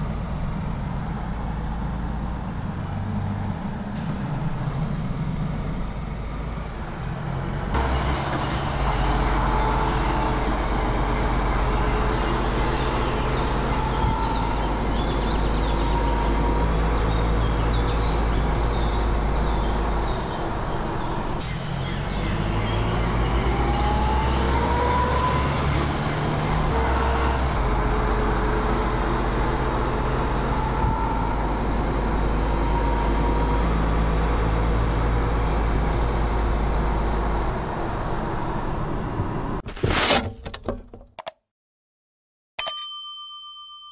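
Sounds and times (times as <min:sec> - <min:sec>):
truck diesel engine droning: 0:00.0 - 0:39.6
sharp metal clang: 0:42.6 - 0:43.8.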